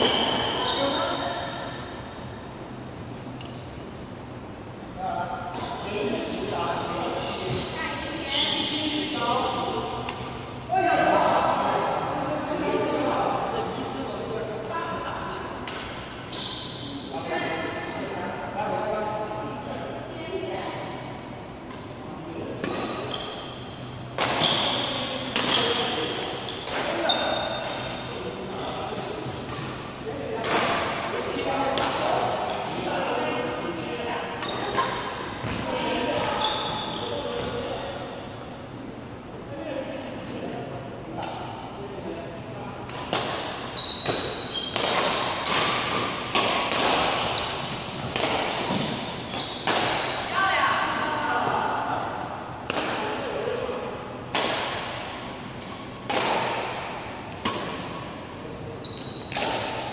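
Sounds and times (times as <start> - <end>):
short high squeaks: 7.8 - 8.6, 16.3 - 17.0, 28.9 - 29.8, 36.3 - 37.2, 48.6 - 49.7, 58.8 - 59.4
racket hitting shuttlecock: 24.2 - 28.7, 30.4 - 31.1, 42.9 - 47.4, 48.0 - 50.3, 52.6 - 53.2, 54.3 - 58.1, 59.3 - 59.9.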